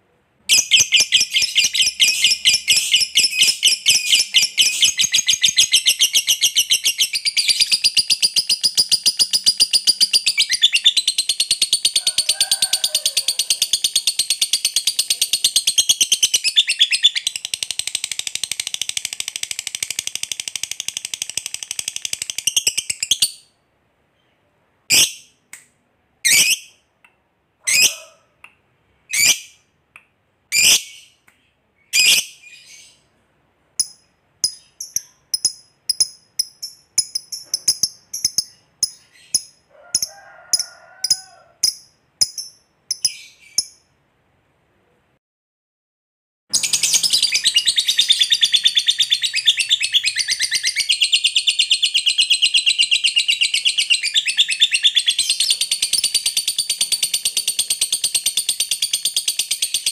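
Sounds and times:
bird sharp chirps: 46.5s - 59.9s.

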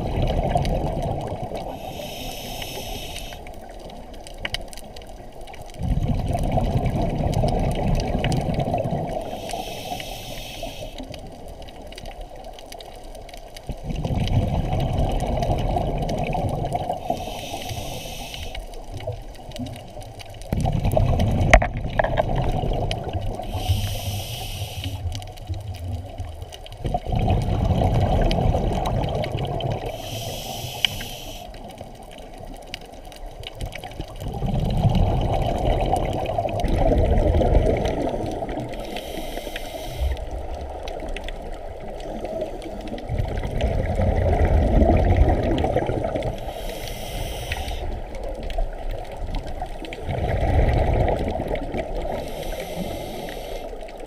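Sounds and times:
exhaled bubbles rumbling: 0.0s - 2.2s, 3.4s - 10.0s, 11.0s - 18.0s, 18.7s - 30.8s, 31.5s - 54.0s
regulator inhale hiss: 1.6s - 3.7s, 9.2s - 11.4s, 17.0s - 19.1s, 23.1s - 25.2s, 29.8s - 31.8s, 38.0s - 40.4s, 46.3s - 48.3s, 52.0s - 54.0s.

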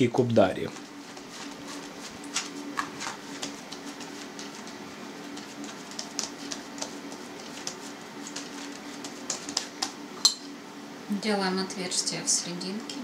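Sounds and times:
hands tapping and rubbing dough: 0.6s - 10.2s.

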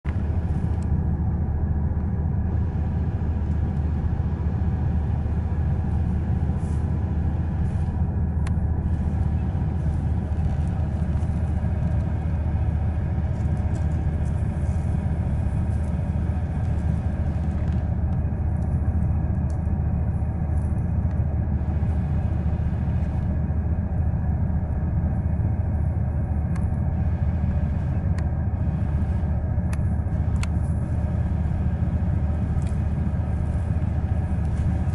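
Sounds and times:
low vehicle rumble: 0.0s - 34.9s.

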